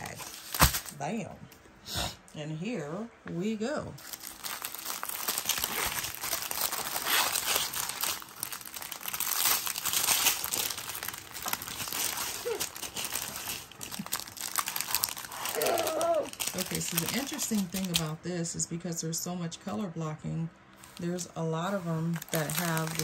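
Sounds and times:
plastic bags crinkling: 0.0s - 1.1s, 4.0s - 18.2s, 20.7s - 23.0s.

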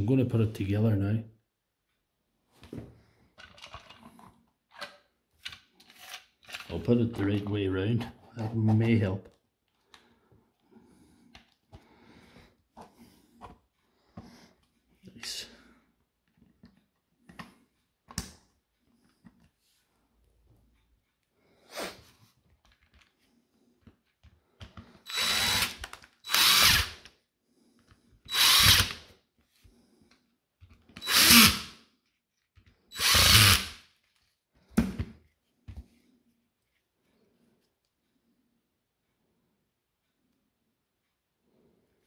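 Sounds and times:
power screwdriver driving screws: 25.1s - 27.1s, 28.3s - 29.0s, 31.0s - 31.7s, 32.9s - 33.8s.

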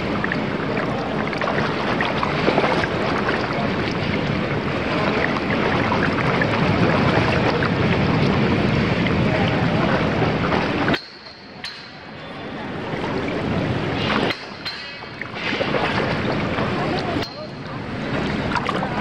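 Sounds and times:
wind-like buffeting on microphone: 0.0s - 10.9s
pool water sloshing and splashing: 0.0s - 19.0s.

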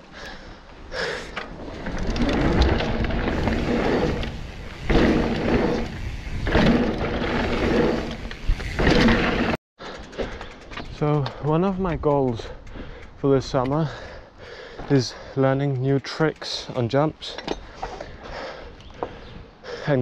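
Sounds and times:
bike tyres rumbling on trail: 0.5s - 15.0s.

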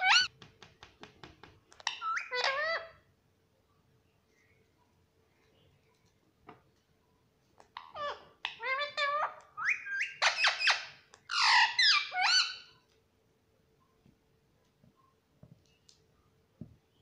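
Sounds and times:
parrot chirping and squawking: 0.0s - 0.3s, 1.8s - 3.1s, 7.7s - 12.8s.

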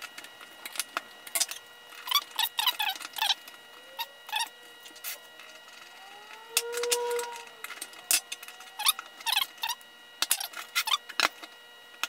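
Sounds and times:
faint tone rising and falling: 3.5s - 10.2s.

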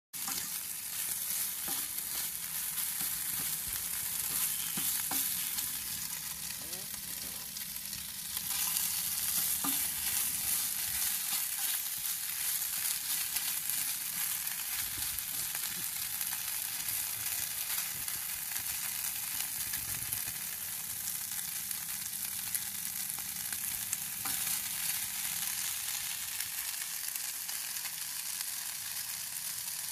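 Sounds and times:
tongs clicking and scraping pan: 0.2s - 6.5s, 7.9s - 16.4s
chicken sizzling in frying pan: 0.2s - 29.9s.

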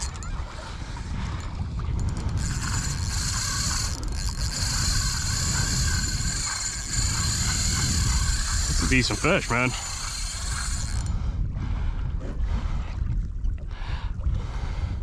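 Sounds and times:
fishing reel whirring: 0.0s - 11.2s
wind and water rumble: 0.0s - 15.0s.

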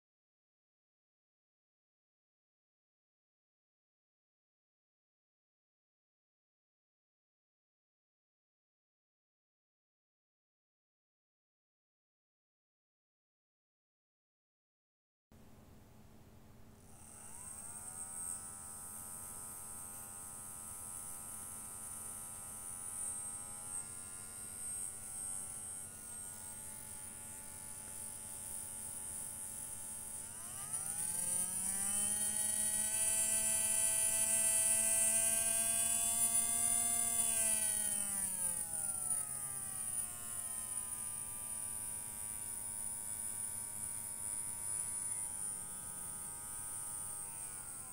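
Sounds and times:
small motor whining: 16.9s - 47.9s.

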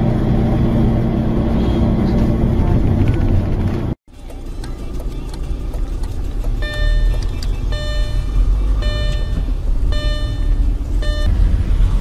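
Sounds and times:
road and engine rumble in car: 0.0s - 12.0s
single-pitched beep: 6.6s - 11.3s.

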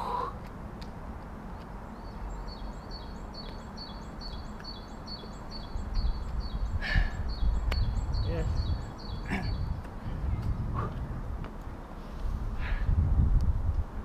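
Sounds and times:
songbird high chirps: 1.5s - 9.8s.

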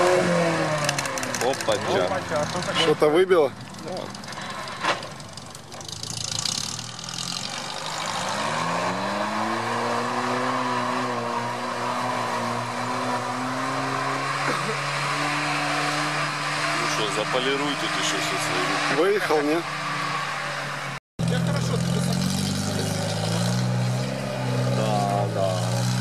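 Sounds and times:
off-road vehicle engine revving: 0.0s - 26.0s.

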